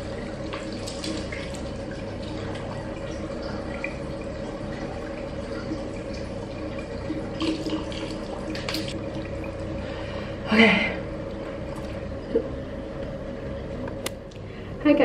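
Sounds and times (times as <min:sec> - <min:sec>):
water splashes: 0:00.0 - 0:09.7.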